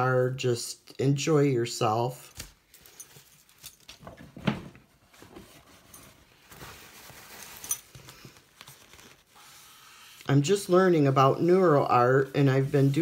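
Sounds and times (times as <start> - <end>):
handling knocks and rustles: 2.4 - 9.2.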